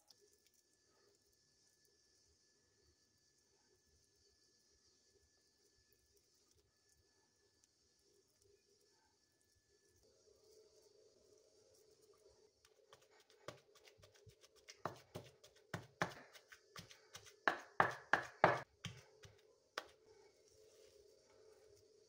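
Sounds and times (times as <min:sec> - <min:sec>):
pestle thudding in stone mortar: 0:14.6 - 0:19.9.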